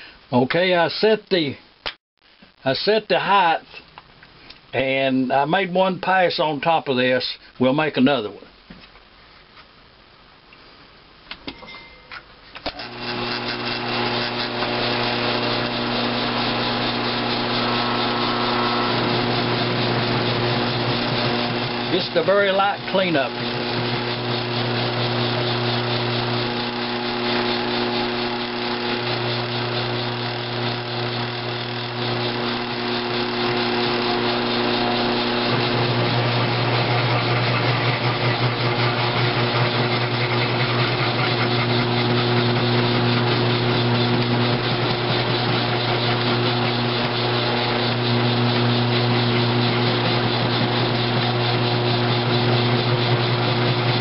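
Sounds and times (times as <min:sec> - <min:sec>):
end mill cutting hiss: 0:12.6 - 0:54.0
milling machine motor hum: 0:12.7 - 0:54.0.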